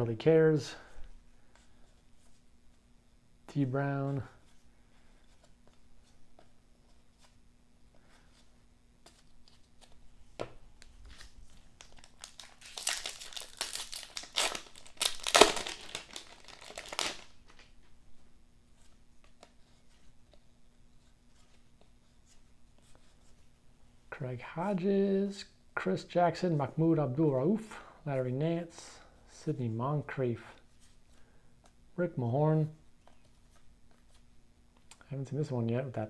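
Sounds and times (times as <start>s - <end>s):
card pack wrapper crinkling: 10.8s - 17.7s.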